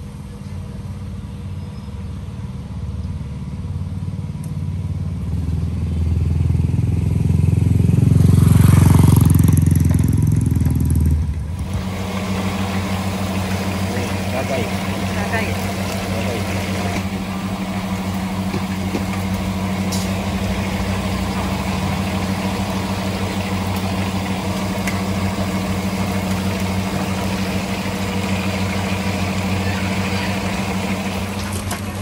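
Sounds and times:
low mechanical hum: 0.0 - 32.0
oil bubbling and sizzling: 8.2 - 32.0.

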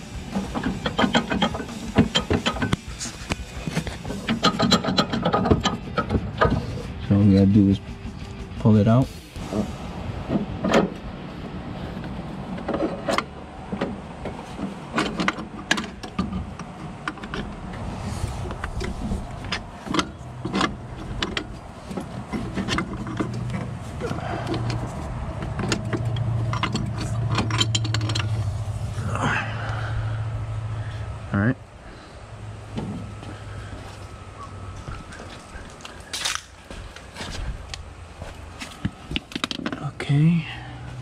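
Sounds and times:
steady low hum: 0.0 - 41.0
metal parts clinking and knocking: 0.4 - 6.2, 25.4 - 28.4.

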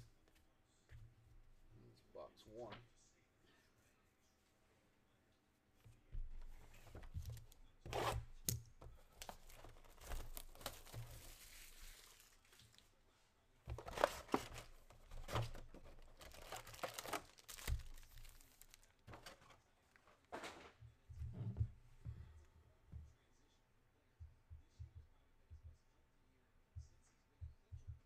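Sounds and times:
foil packs crinkling: 9.2 - 12.8, 13.7 - 19.6
cardboard box tearing: 13.8 - 18.4.

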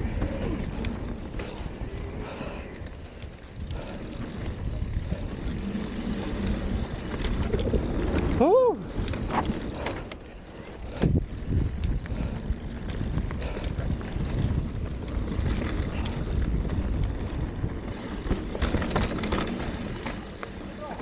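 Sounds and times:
bike tyres on dirt and leaves: 0.0 - 21.0
wind buffeting microphone: 0.0 - 21.0
bike knocks and rattles: 12.8 - 21.0.

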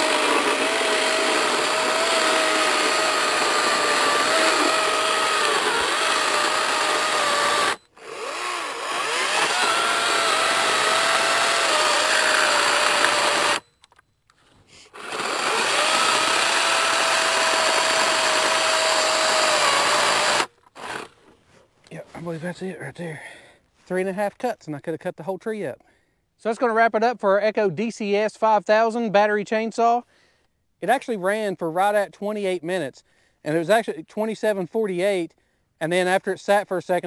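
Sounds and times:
electric chainsaw whining: 0.0 - 21.2.

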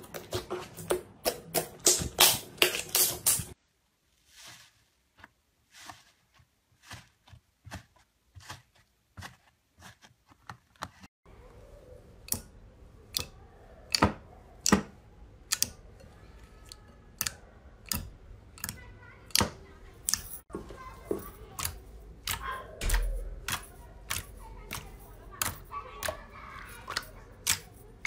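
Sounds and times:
slime crackling and clicking: 15.4 - 15.8, 21.6 - 27.8.

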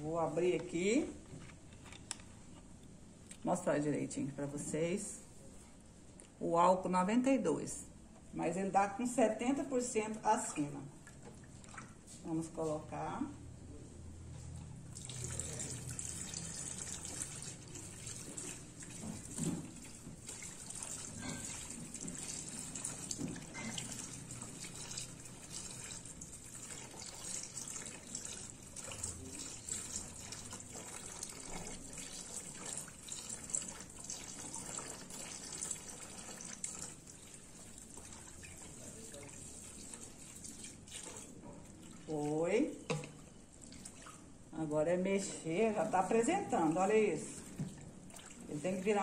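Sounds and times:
liquid pouring and splashing: 11.0 - 12.2, 14.9 - 44.5, 45.7 - 49.0.

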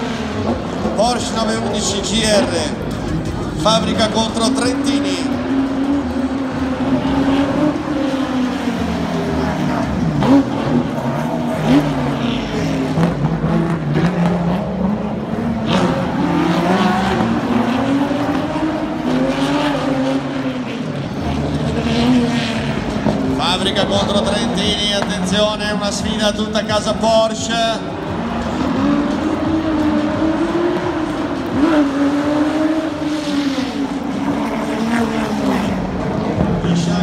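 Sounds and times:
race car engines revving: 0.0 - 37.0.

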